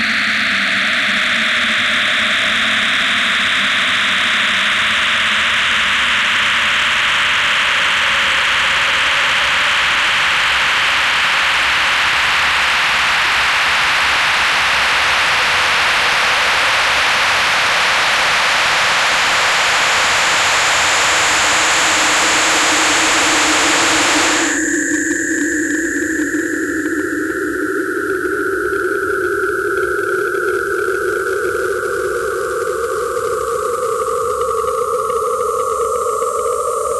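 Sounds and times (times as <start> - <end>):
harsh electronic hiss: 16.0 - 24.6.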